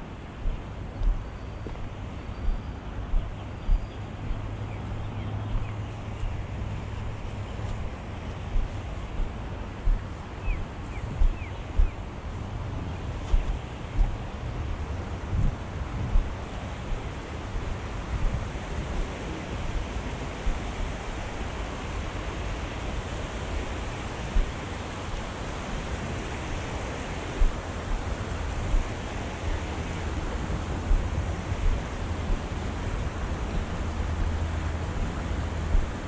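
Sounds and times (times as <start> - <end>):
deep rumble: 0.0 - 17.0
wind buffeting the microphone: 0.0 - 36.0.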